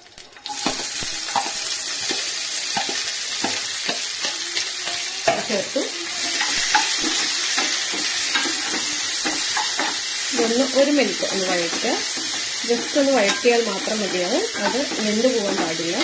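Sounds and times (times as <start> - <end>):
vegetables sizzling in oil: 0.0 - 16.0
spatula tapping and scraping: 6.2 - 16.0.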